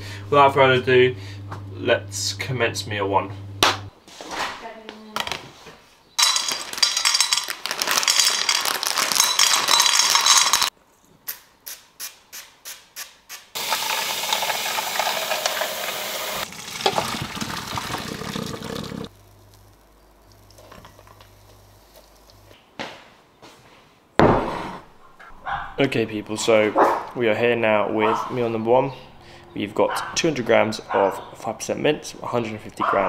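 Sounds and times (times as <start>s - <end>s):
mince sizzling in a pan: 13.6s - 17.0s.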